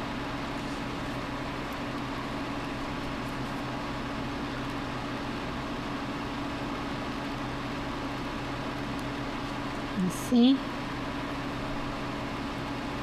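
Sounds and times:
background hum with hiss: 0.0s - 13.0s.

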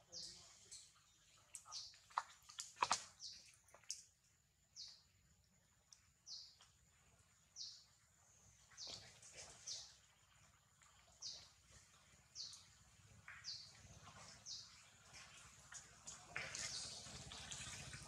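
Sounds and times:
bird chirping: 4.7s - 5.1s, 6.2s - 6.7s, 7.5s - 7.9s, 12.4s - 12.7s, 13.3s - 14.9s.

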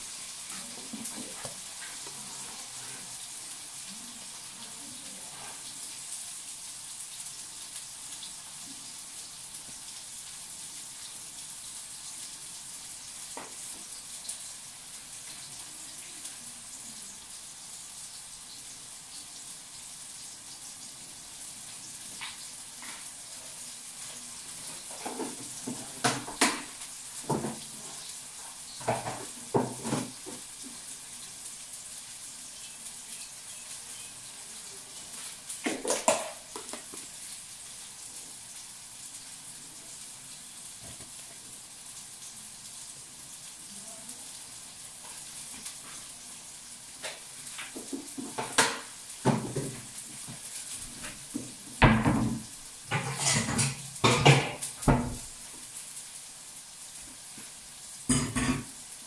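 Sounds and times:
steady high hiss: 0.0s - 59.0s
pots and dishes clattering: 24.6s - 28.1s, 28.7s - 30.7s, 35.6s - 37.1s, 47.0s - 55.2s, 58.1s - 58.8s.

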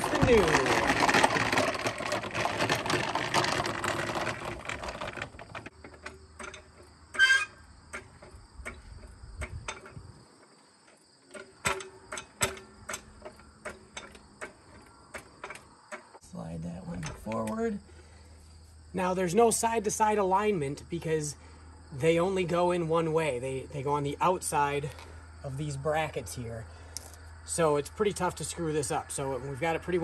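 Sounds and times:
sharp clicks and knocks: 0.0s - 16.2s
dolly rolling on concrete: 0.0s - 30.0s
insects chirping: 4.6s - 30.0s.

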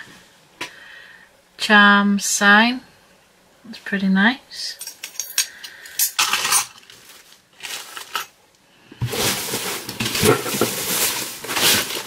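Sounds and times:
packaging rustling: 6.8s - 8.3s, 9.0s - 12.0s
small items knocking: 9.0s - 12.0s.

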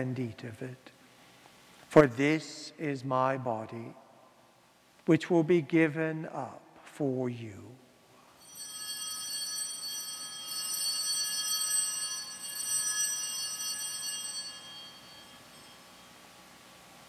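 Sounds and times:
small bells ringing: 8.4s - 16.2s.

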